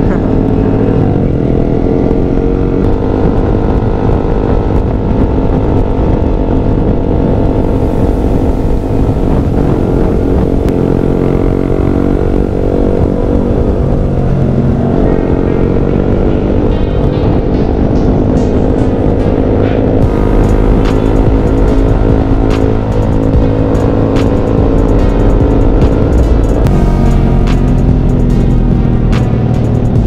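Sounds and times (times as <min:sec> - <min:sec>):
motorcycle engine running: 0:00.0 - 0:30.0
wind rushing over microphone: 0:00.0 - 0:30.0.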